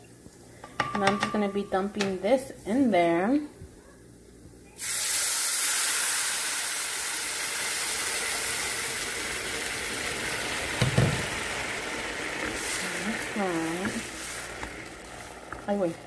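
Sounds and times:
liquid sizzling in a hot pan: 0:04.8 - 0:16.0.

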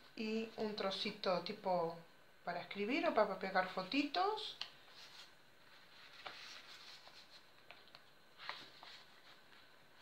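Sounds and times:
paper and card rustling: 0:04.8 - 0:10.0.

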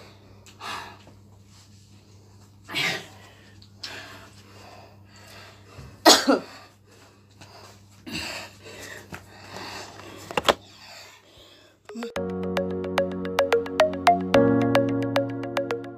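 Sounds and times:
music: 0:11.9 - 0:15.9.

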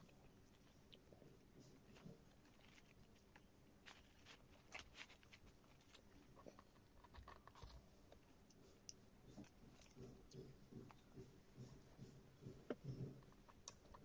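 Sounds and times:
paper wrapper crinkling: 0:02.3 - 0:07.7.

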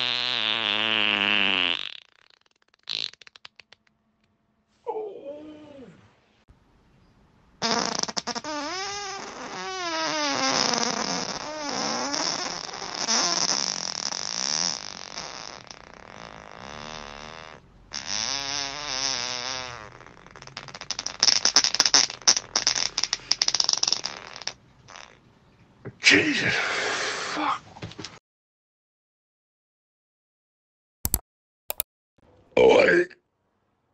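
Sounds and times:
person farting: 0:00.0 - 0:03.9, 0:07.6 - 0:25.2.

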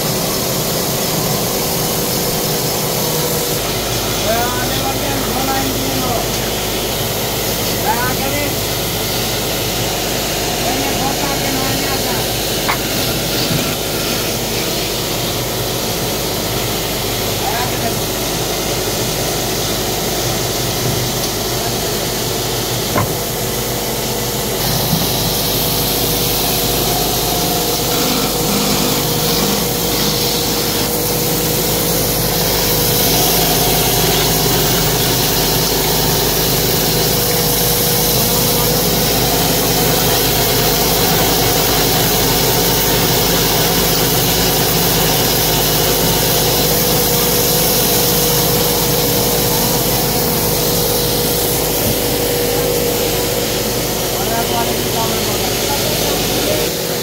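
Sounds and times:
wood lathe humming: 0:00.0 - 0:57.0
chisel scraping spinning wood: 0:25.8 - 0:36.3.

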